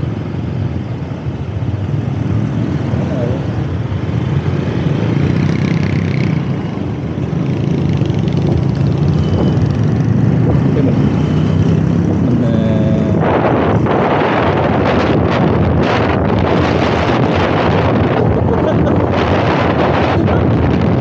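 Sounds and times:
other motorbikes in traffic: 0.0s - 21.0s
wind noise on microphone: 3.8s - 11.1s, 11.7s - 21.0s.

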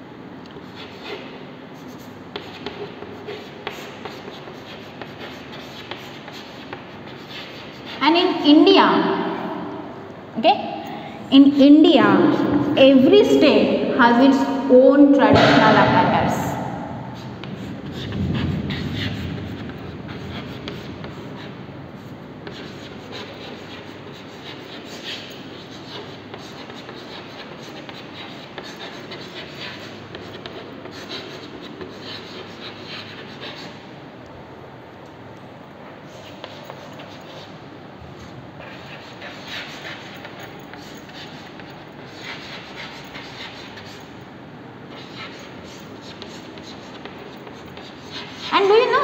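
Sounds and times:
chalk scratching on chalkboard: 0.5s - 8.5s, 11.4s - 13.4s, 17.2s - 33.8s, 35.9s - 44.2s, 44.9s - 49.0s
chalk tapping on board: 1.9s - 8.0s, 44.9s - 48.8s.

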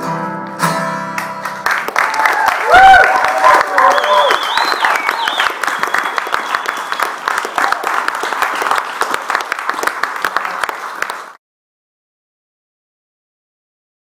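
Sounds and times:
crowd applauding: 1.2s - 11.4s.

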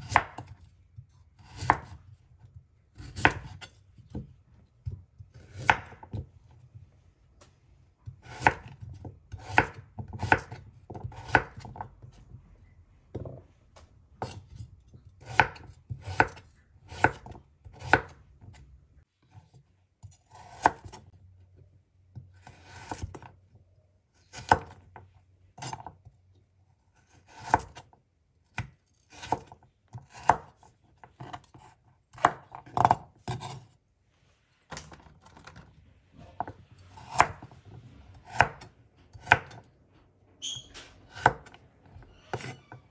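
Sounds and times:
knife slicing vegetables: 0.0s - 2.0s, 2.9s - 4.3s, 4.9s - 6.3s, 8.0s - 12.1s, 14.2s - 18.6s, 19.4s - 21.0s, 27.0s - 27.9s, 28.6s - 33.7s, 36.2s - 39.7s.

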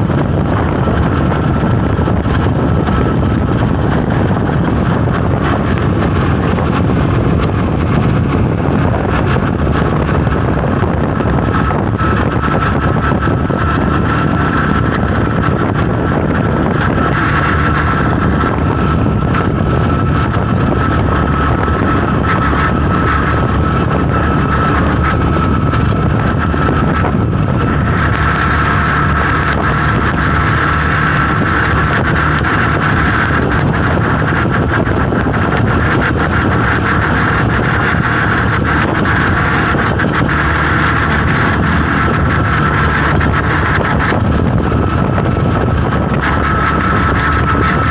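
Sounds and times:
road and wind noise: 0.0s - 47.9s
steady high whine: 0.0s - 47.9s
vehicle engine running: 0.0s - 47.9s.

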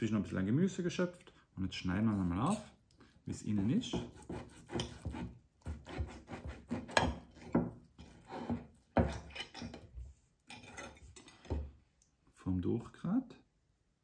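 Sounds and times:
knife sawing through steak: 3.4s - 9.7s.

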